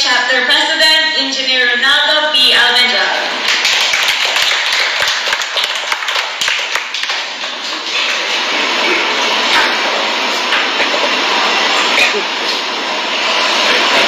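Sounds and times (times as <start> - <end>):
audience applause: 3.4 - 12.5.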